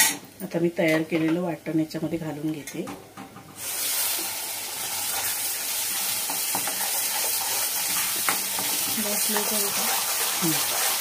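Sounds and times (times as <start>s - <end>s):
paste sizzling in hot oil: 3.6s - 11.0s.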